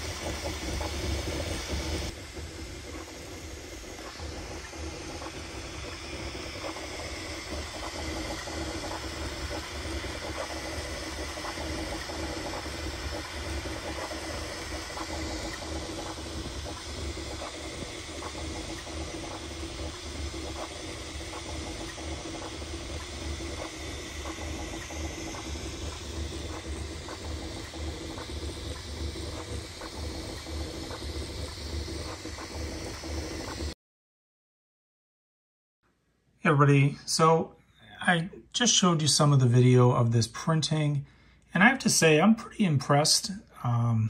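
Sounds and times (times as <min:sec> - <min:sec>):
printer whirring hum: 0:00.0 - 0:33.8.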